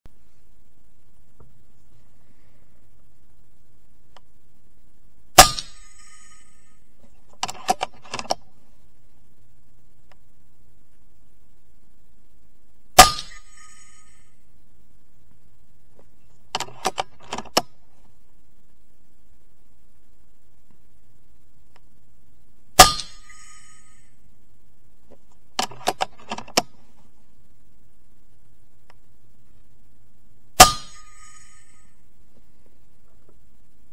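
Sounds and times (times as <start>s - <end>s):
air rifle shot with metallic ring: 5.4s - 6.8s, 13.0s - 14.4s, 22.8s - 24.2s, 30.6s - 32.0s
rifle lever clicking: 16.6s - 17.7s, 25.6s - 26.7s.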